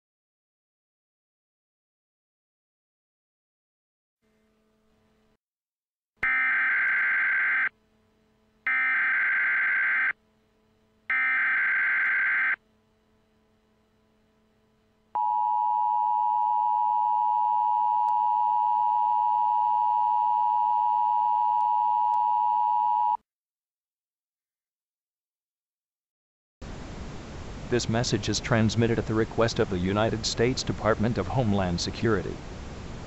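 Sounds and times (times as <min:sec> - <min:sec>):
two-tone attention signal: 0:08.7 - 0:10.1, 0:11.1 - 0:12.6, 0:15.2 - 0:23.2.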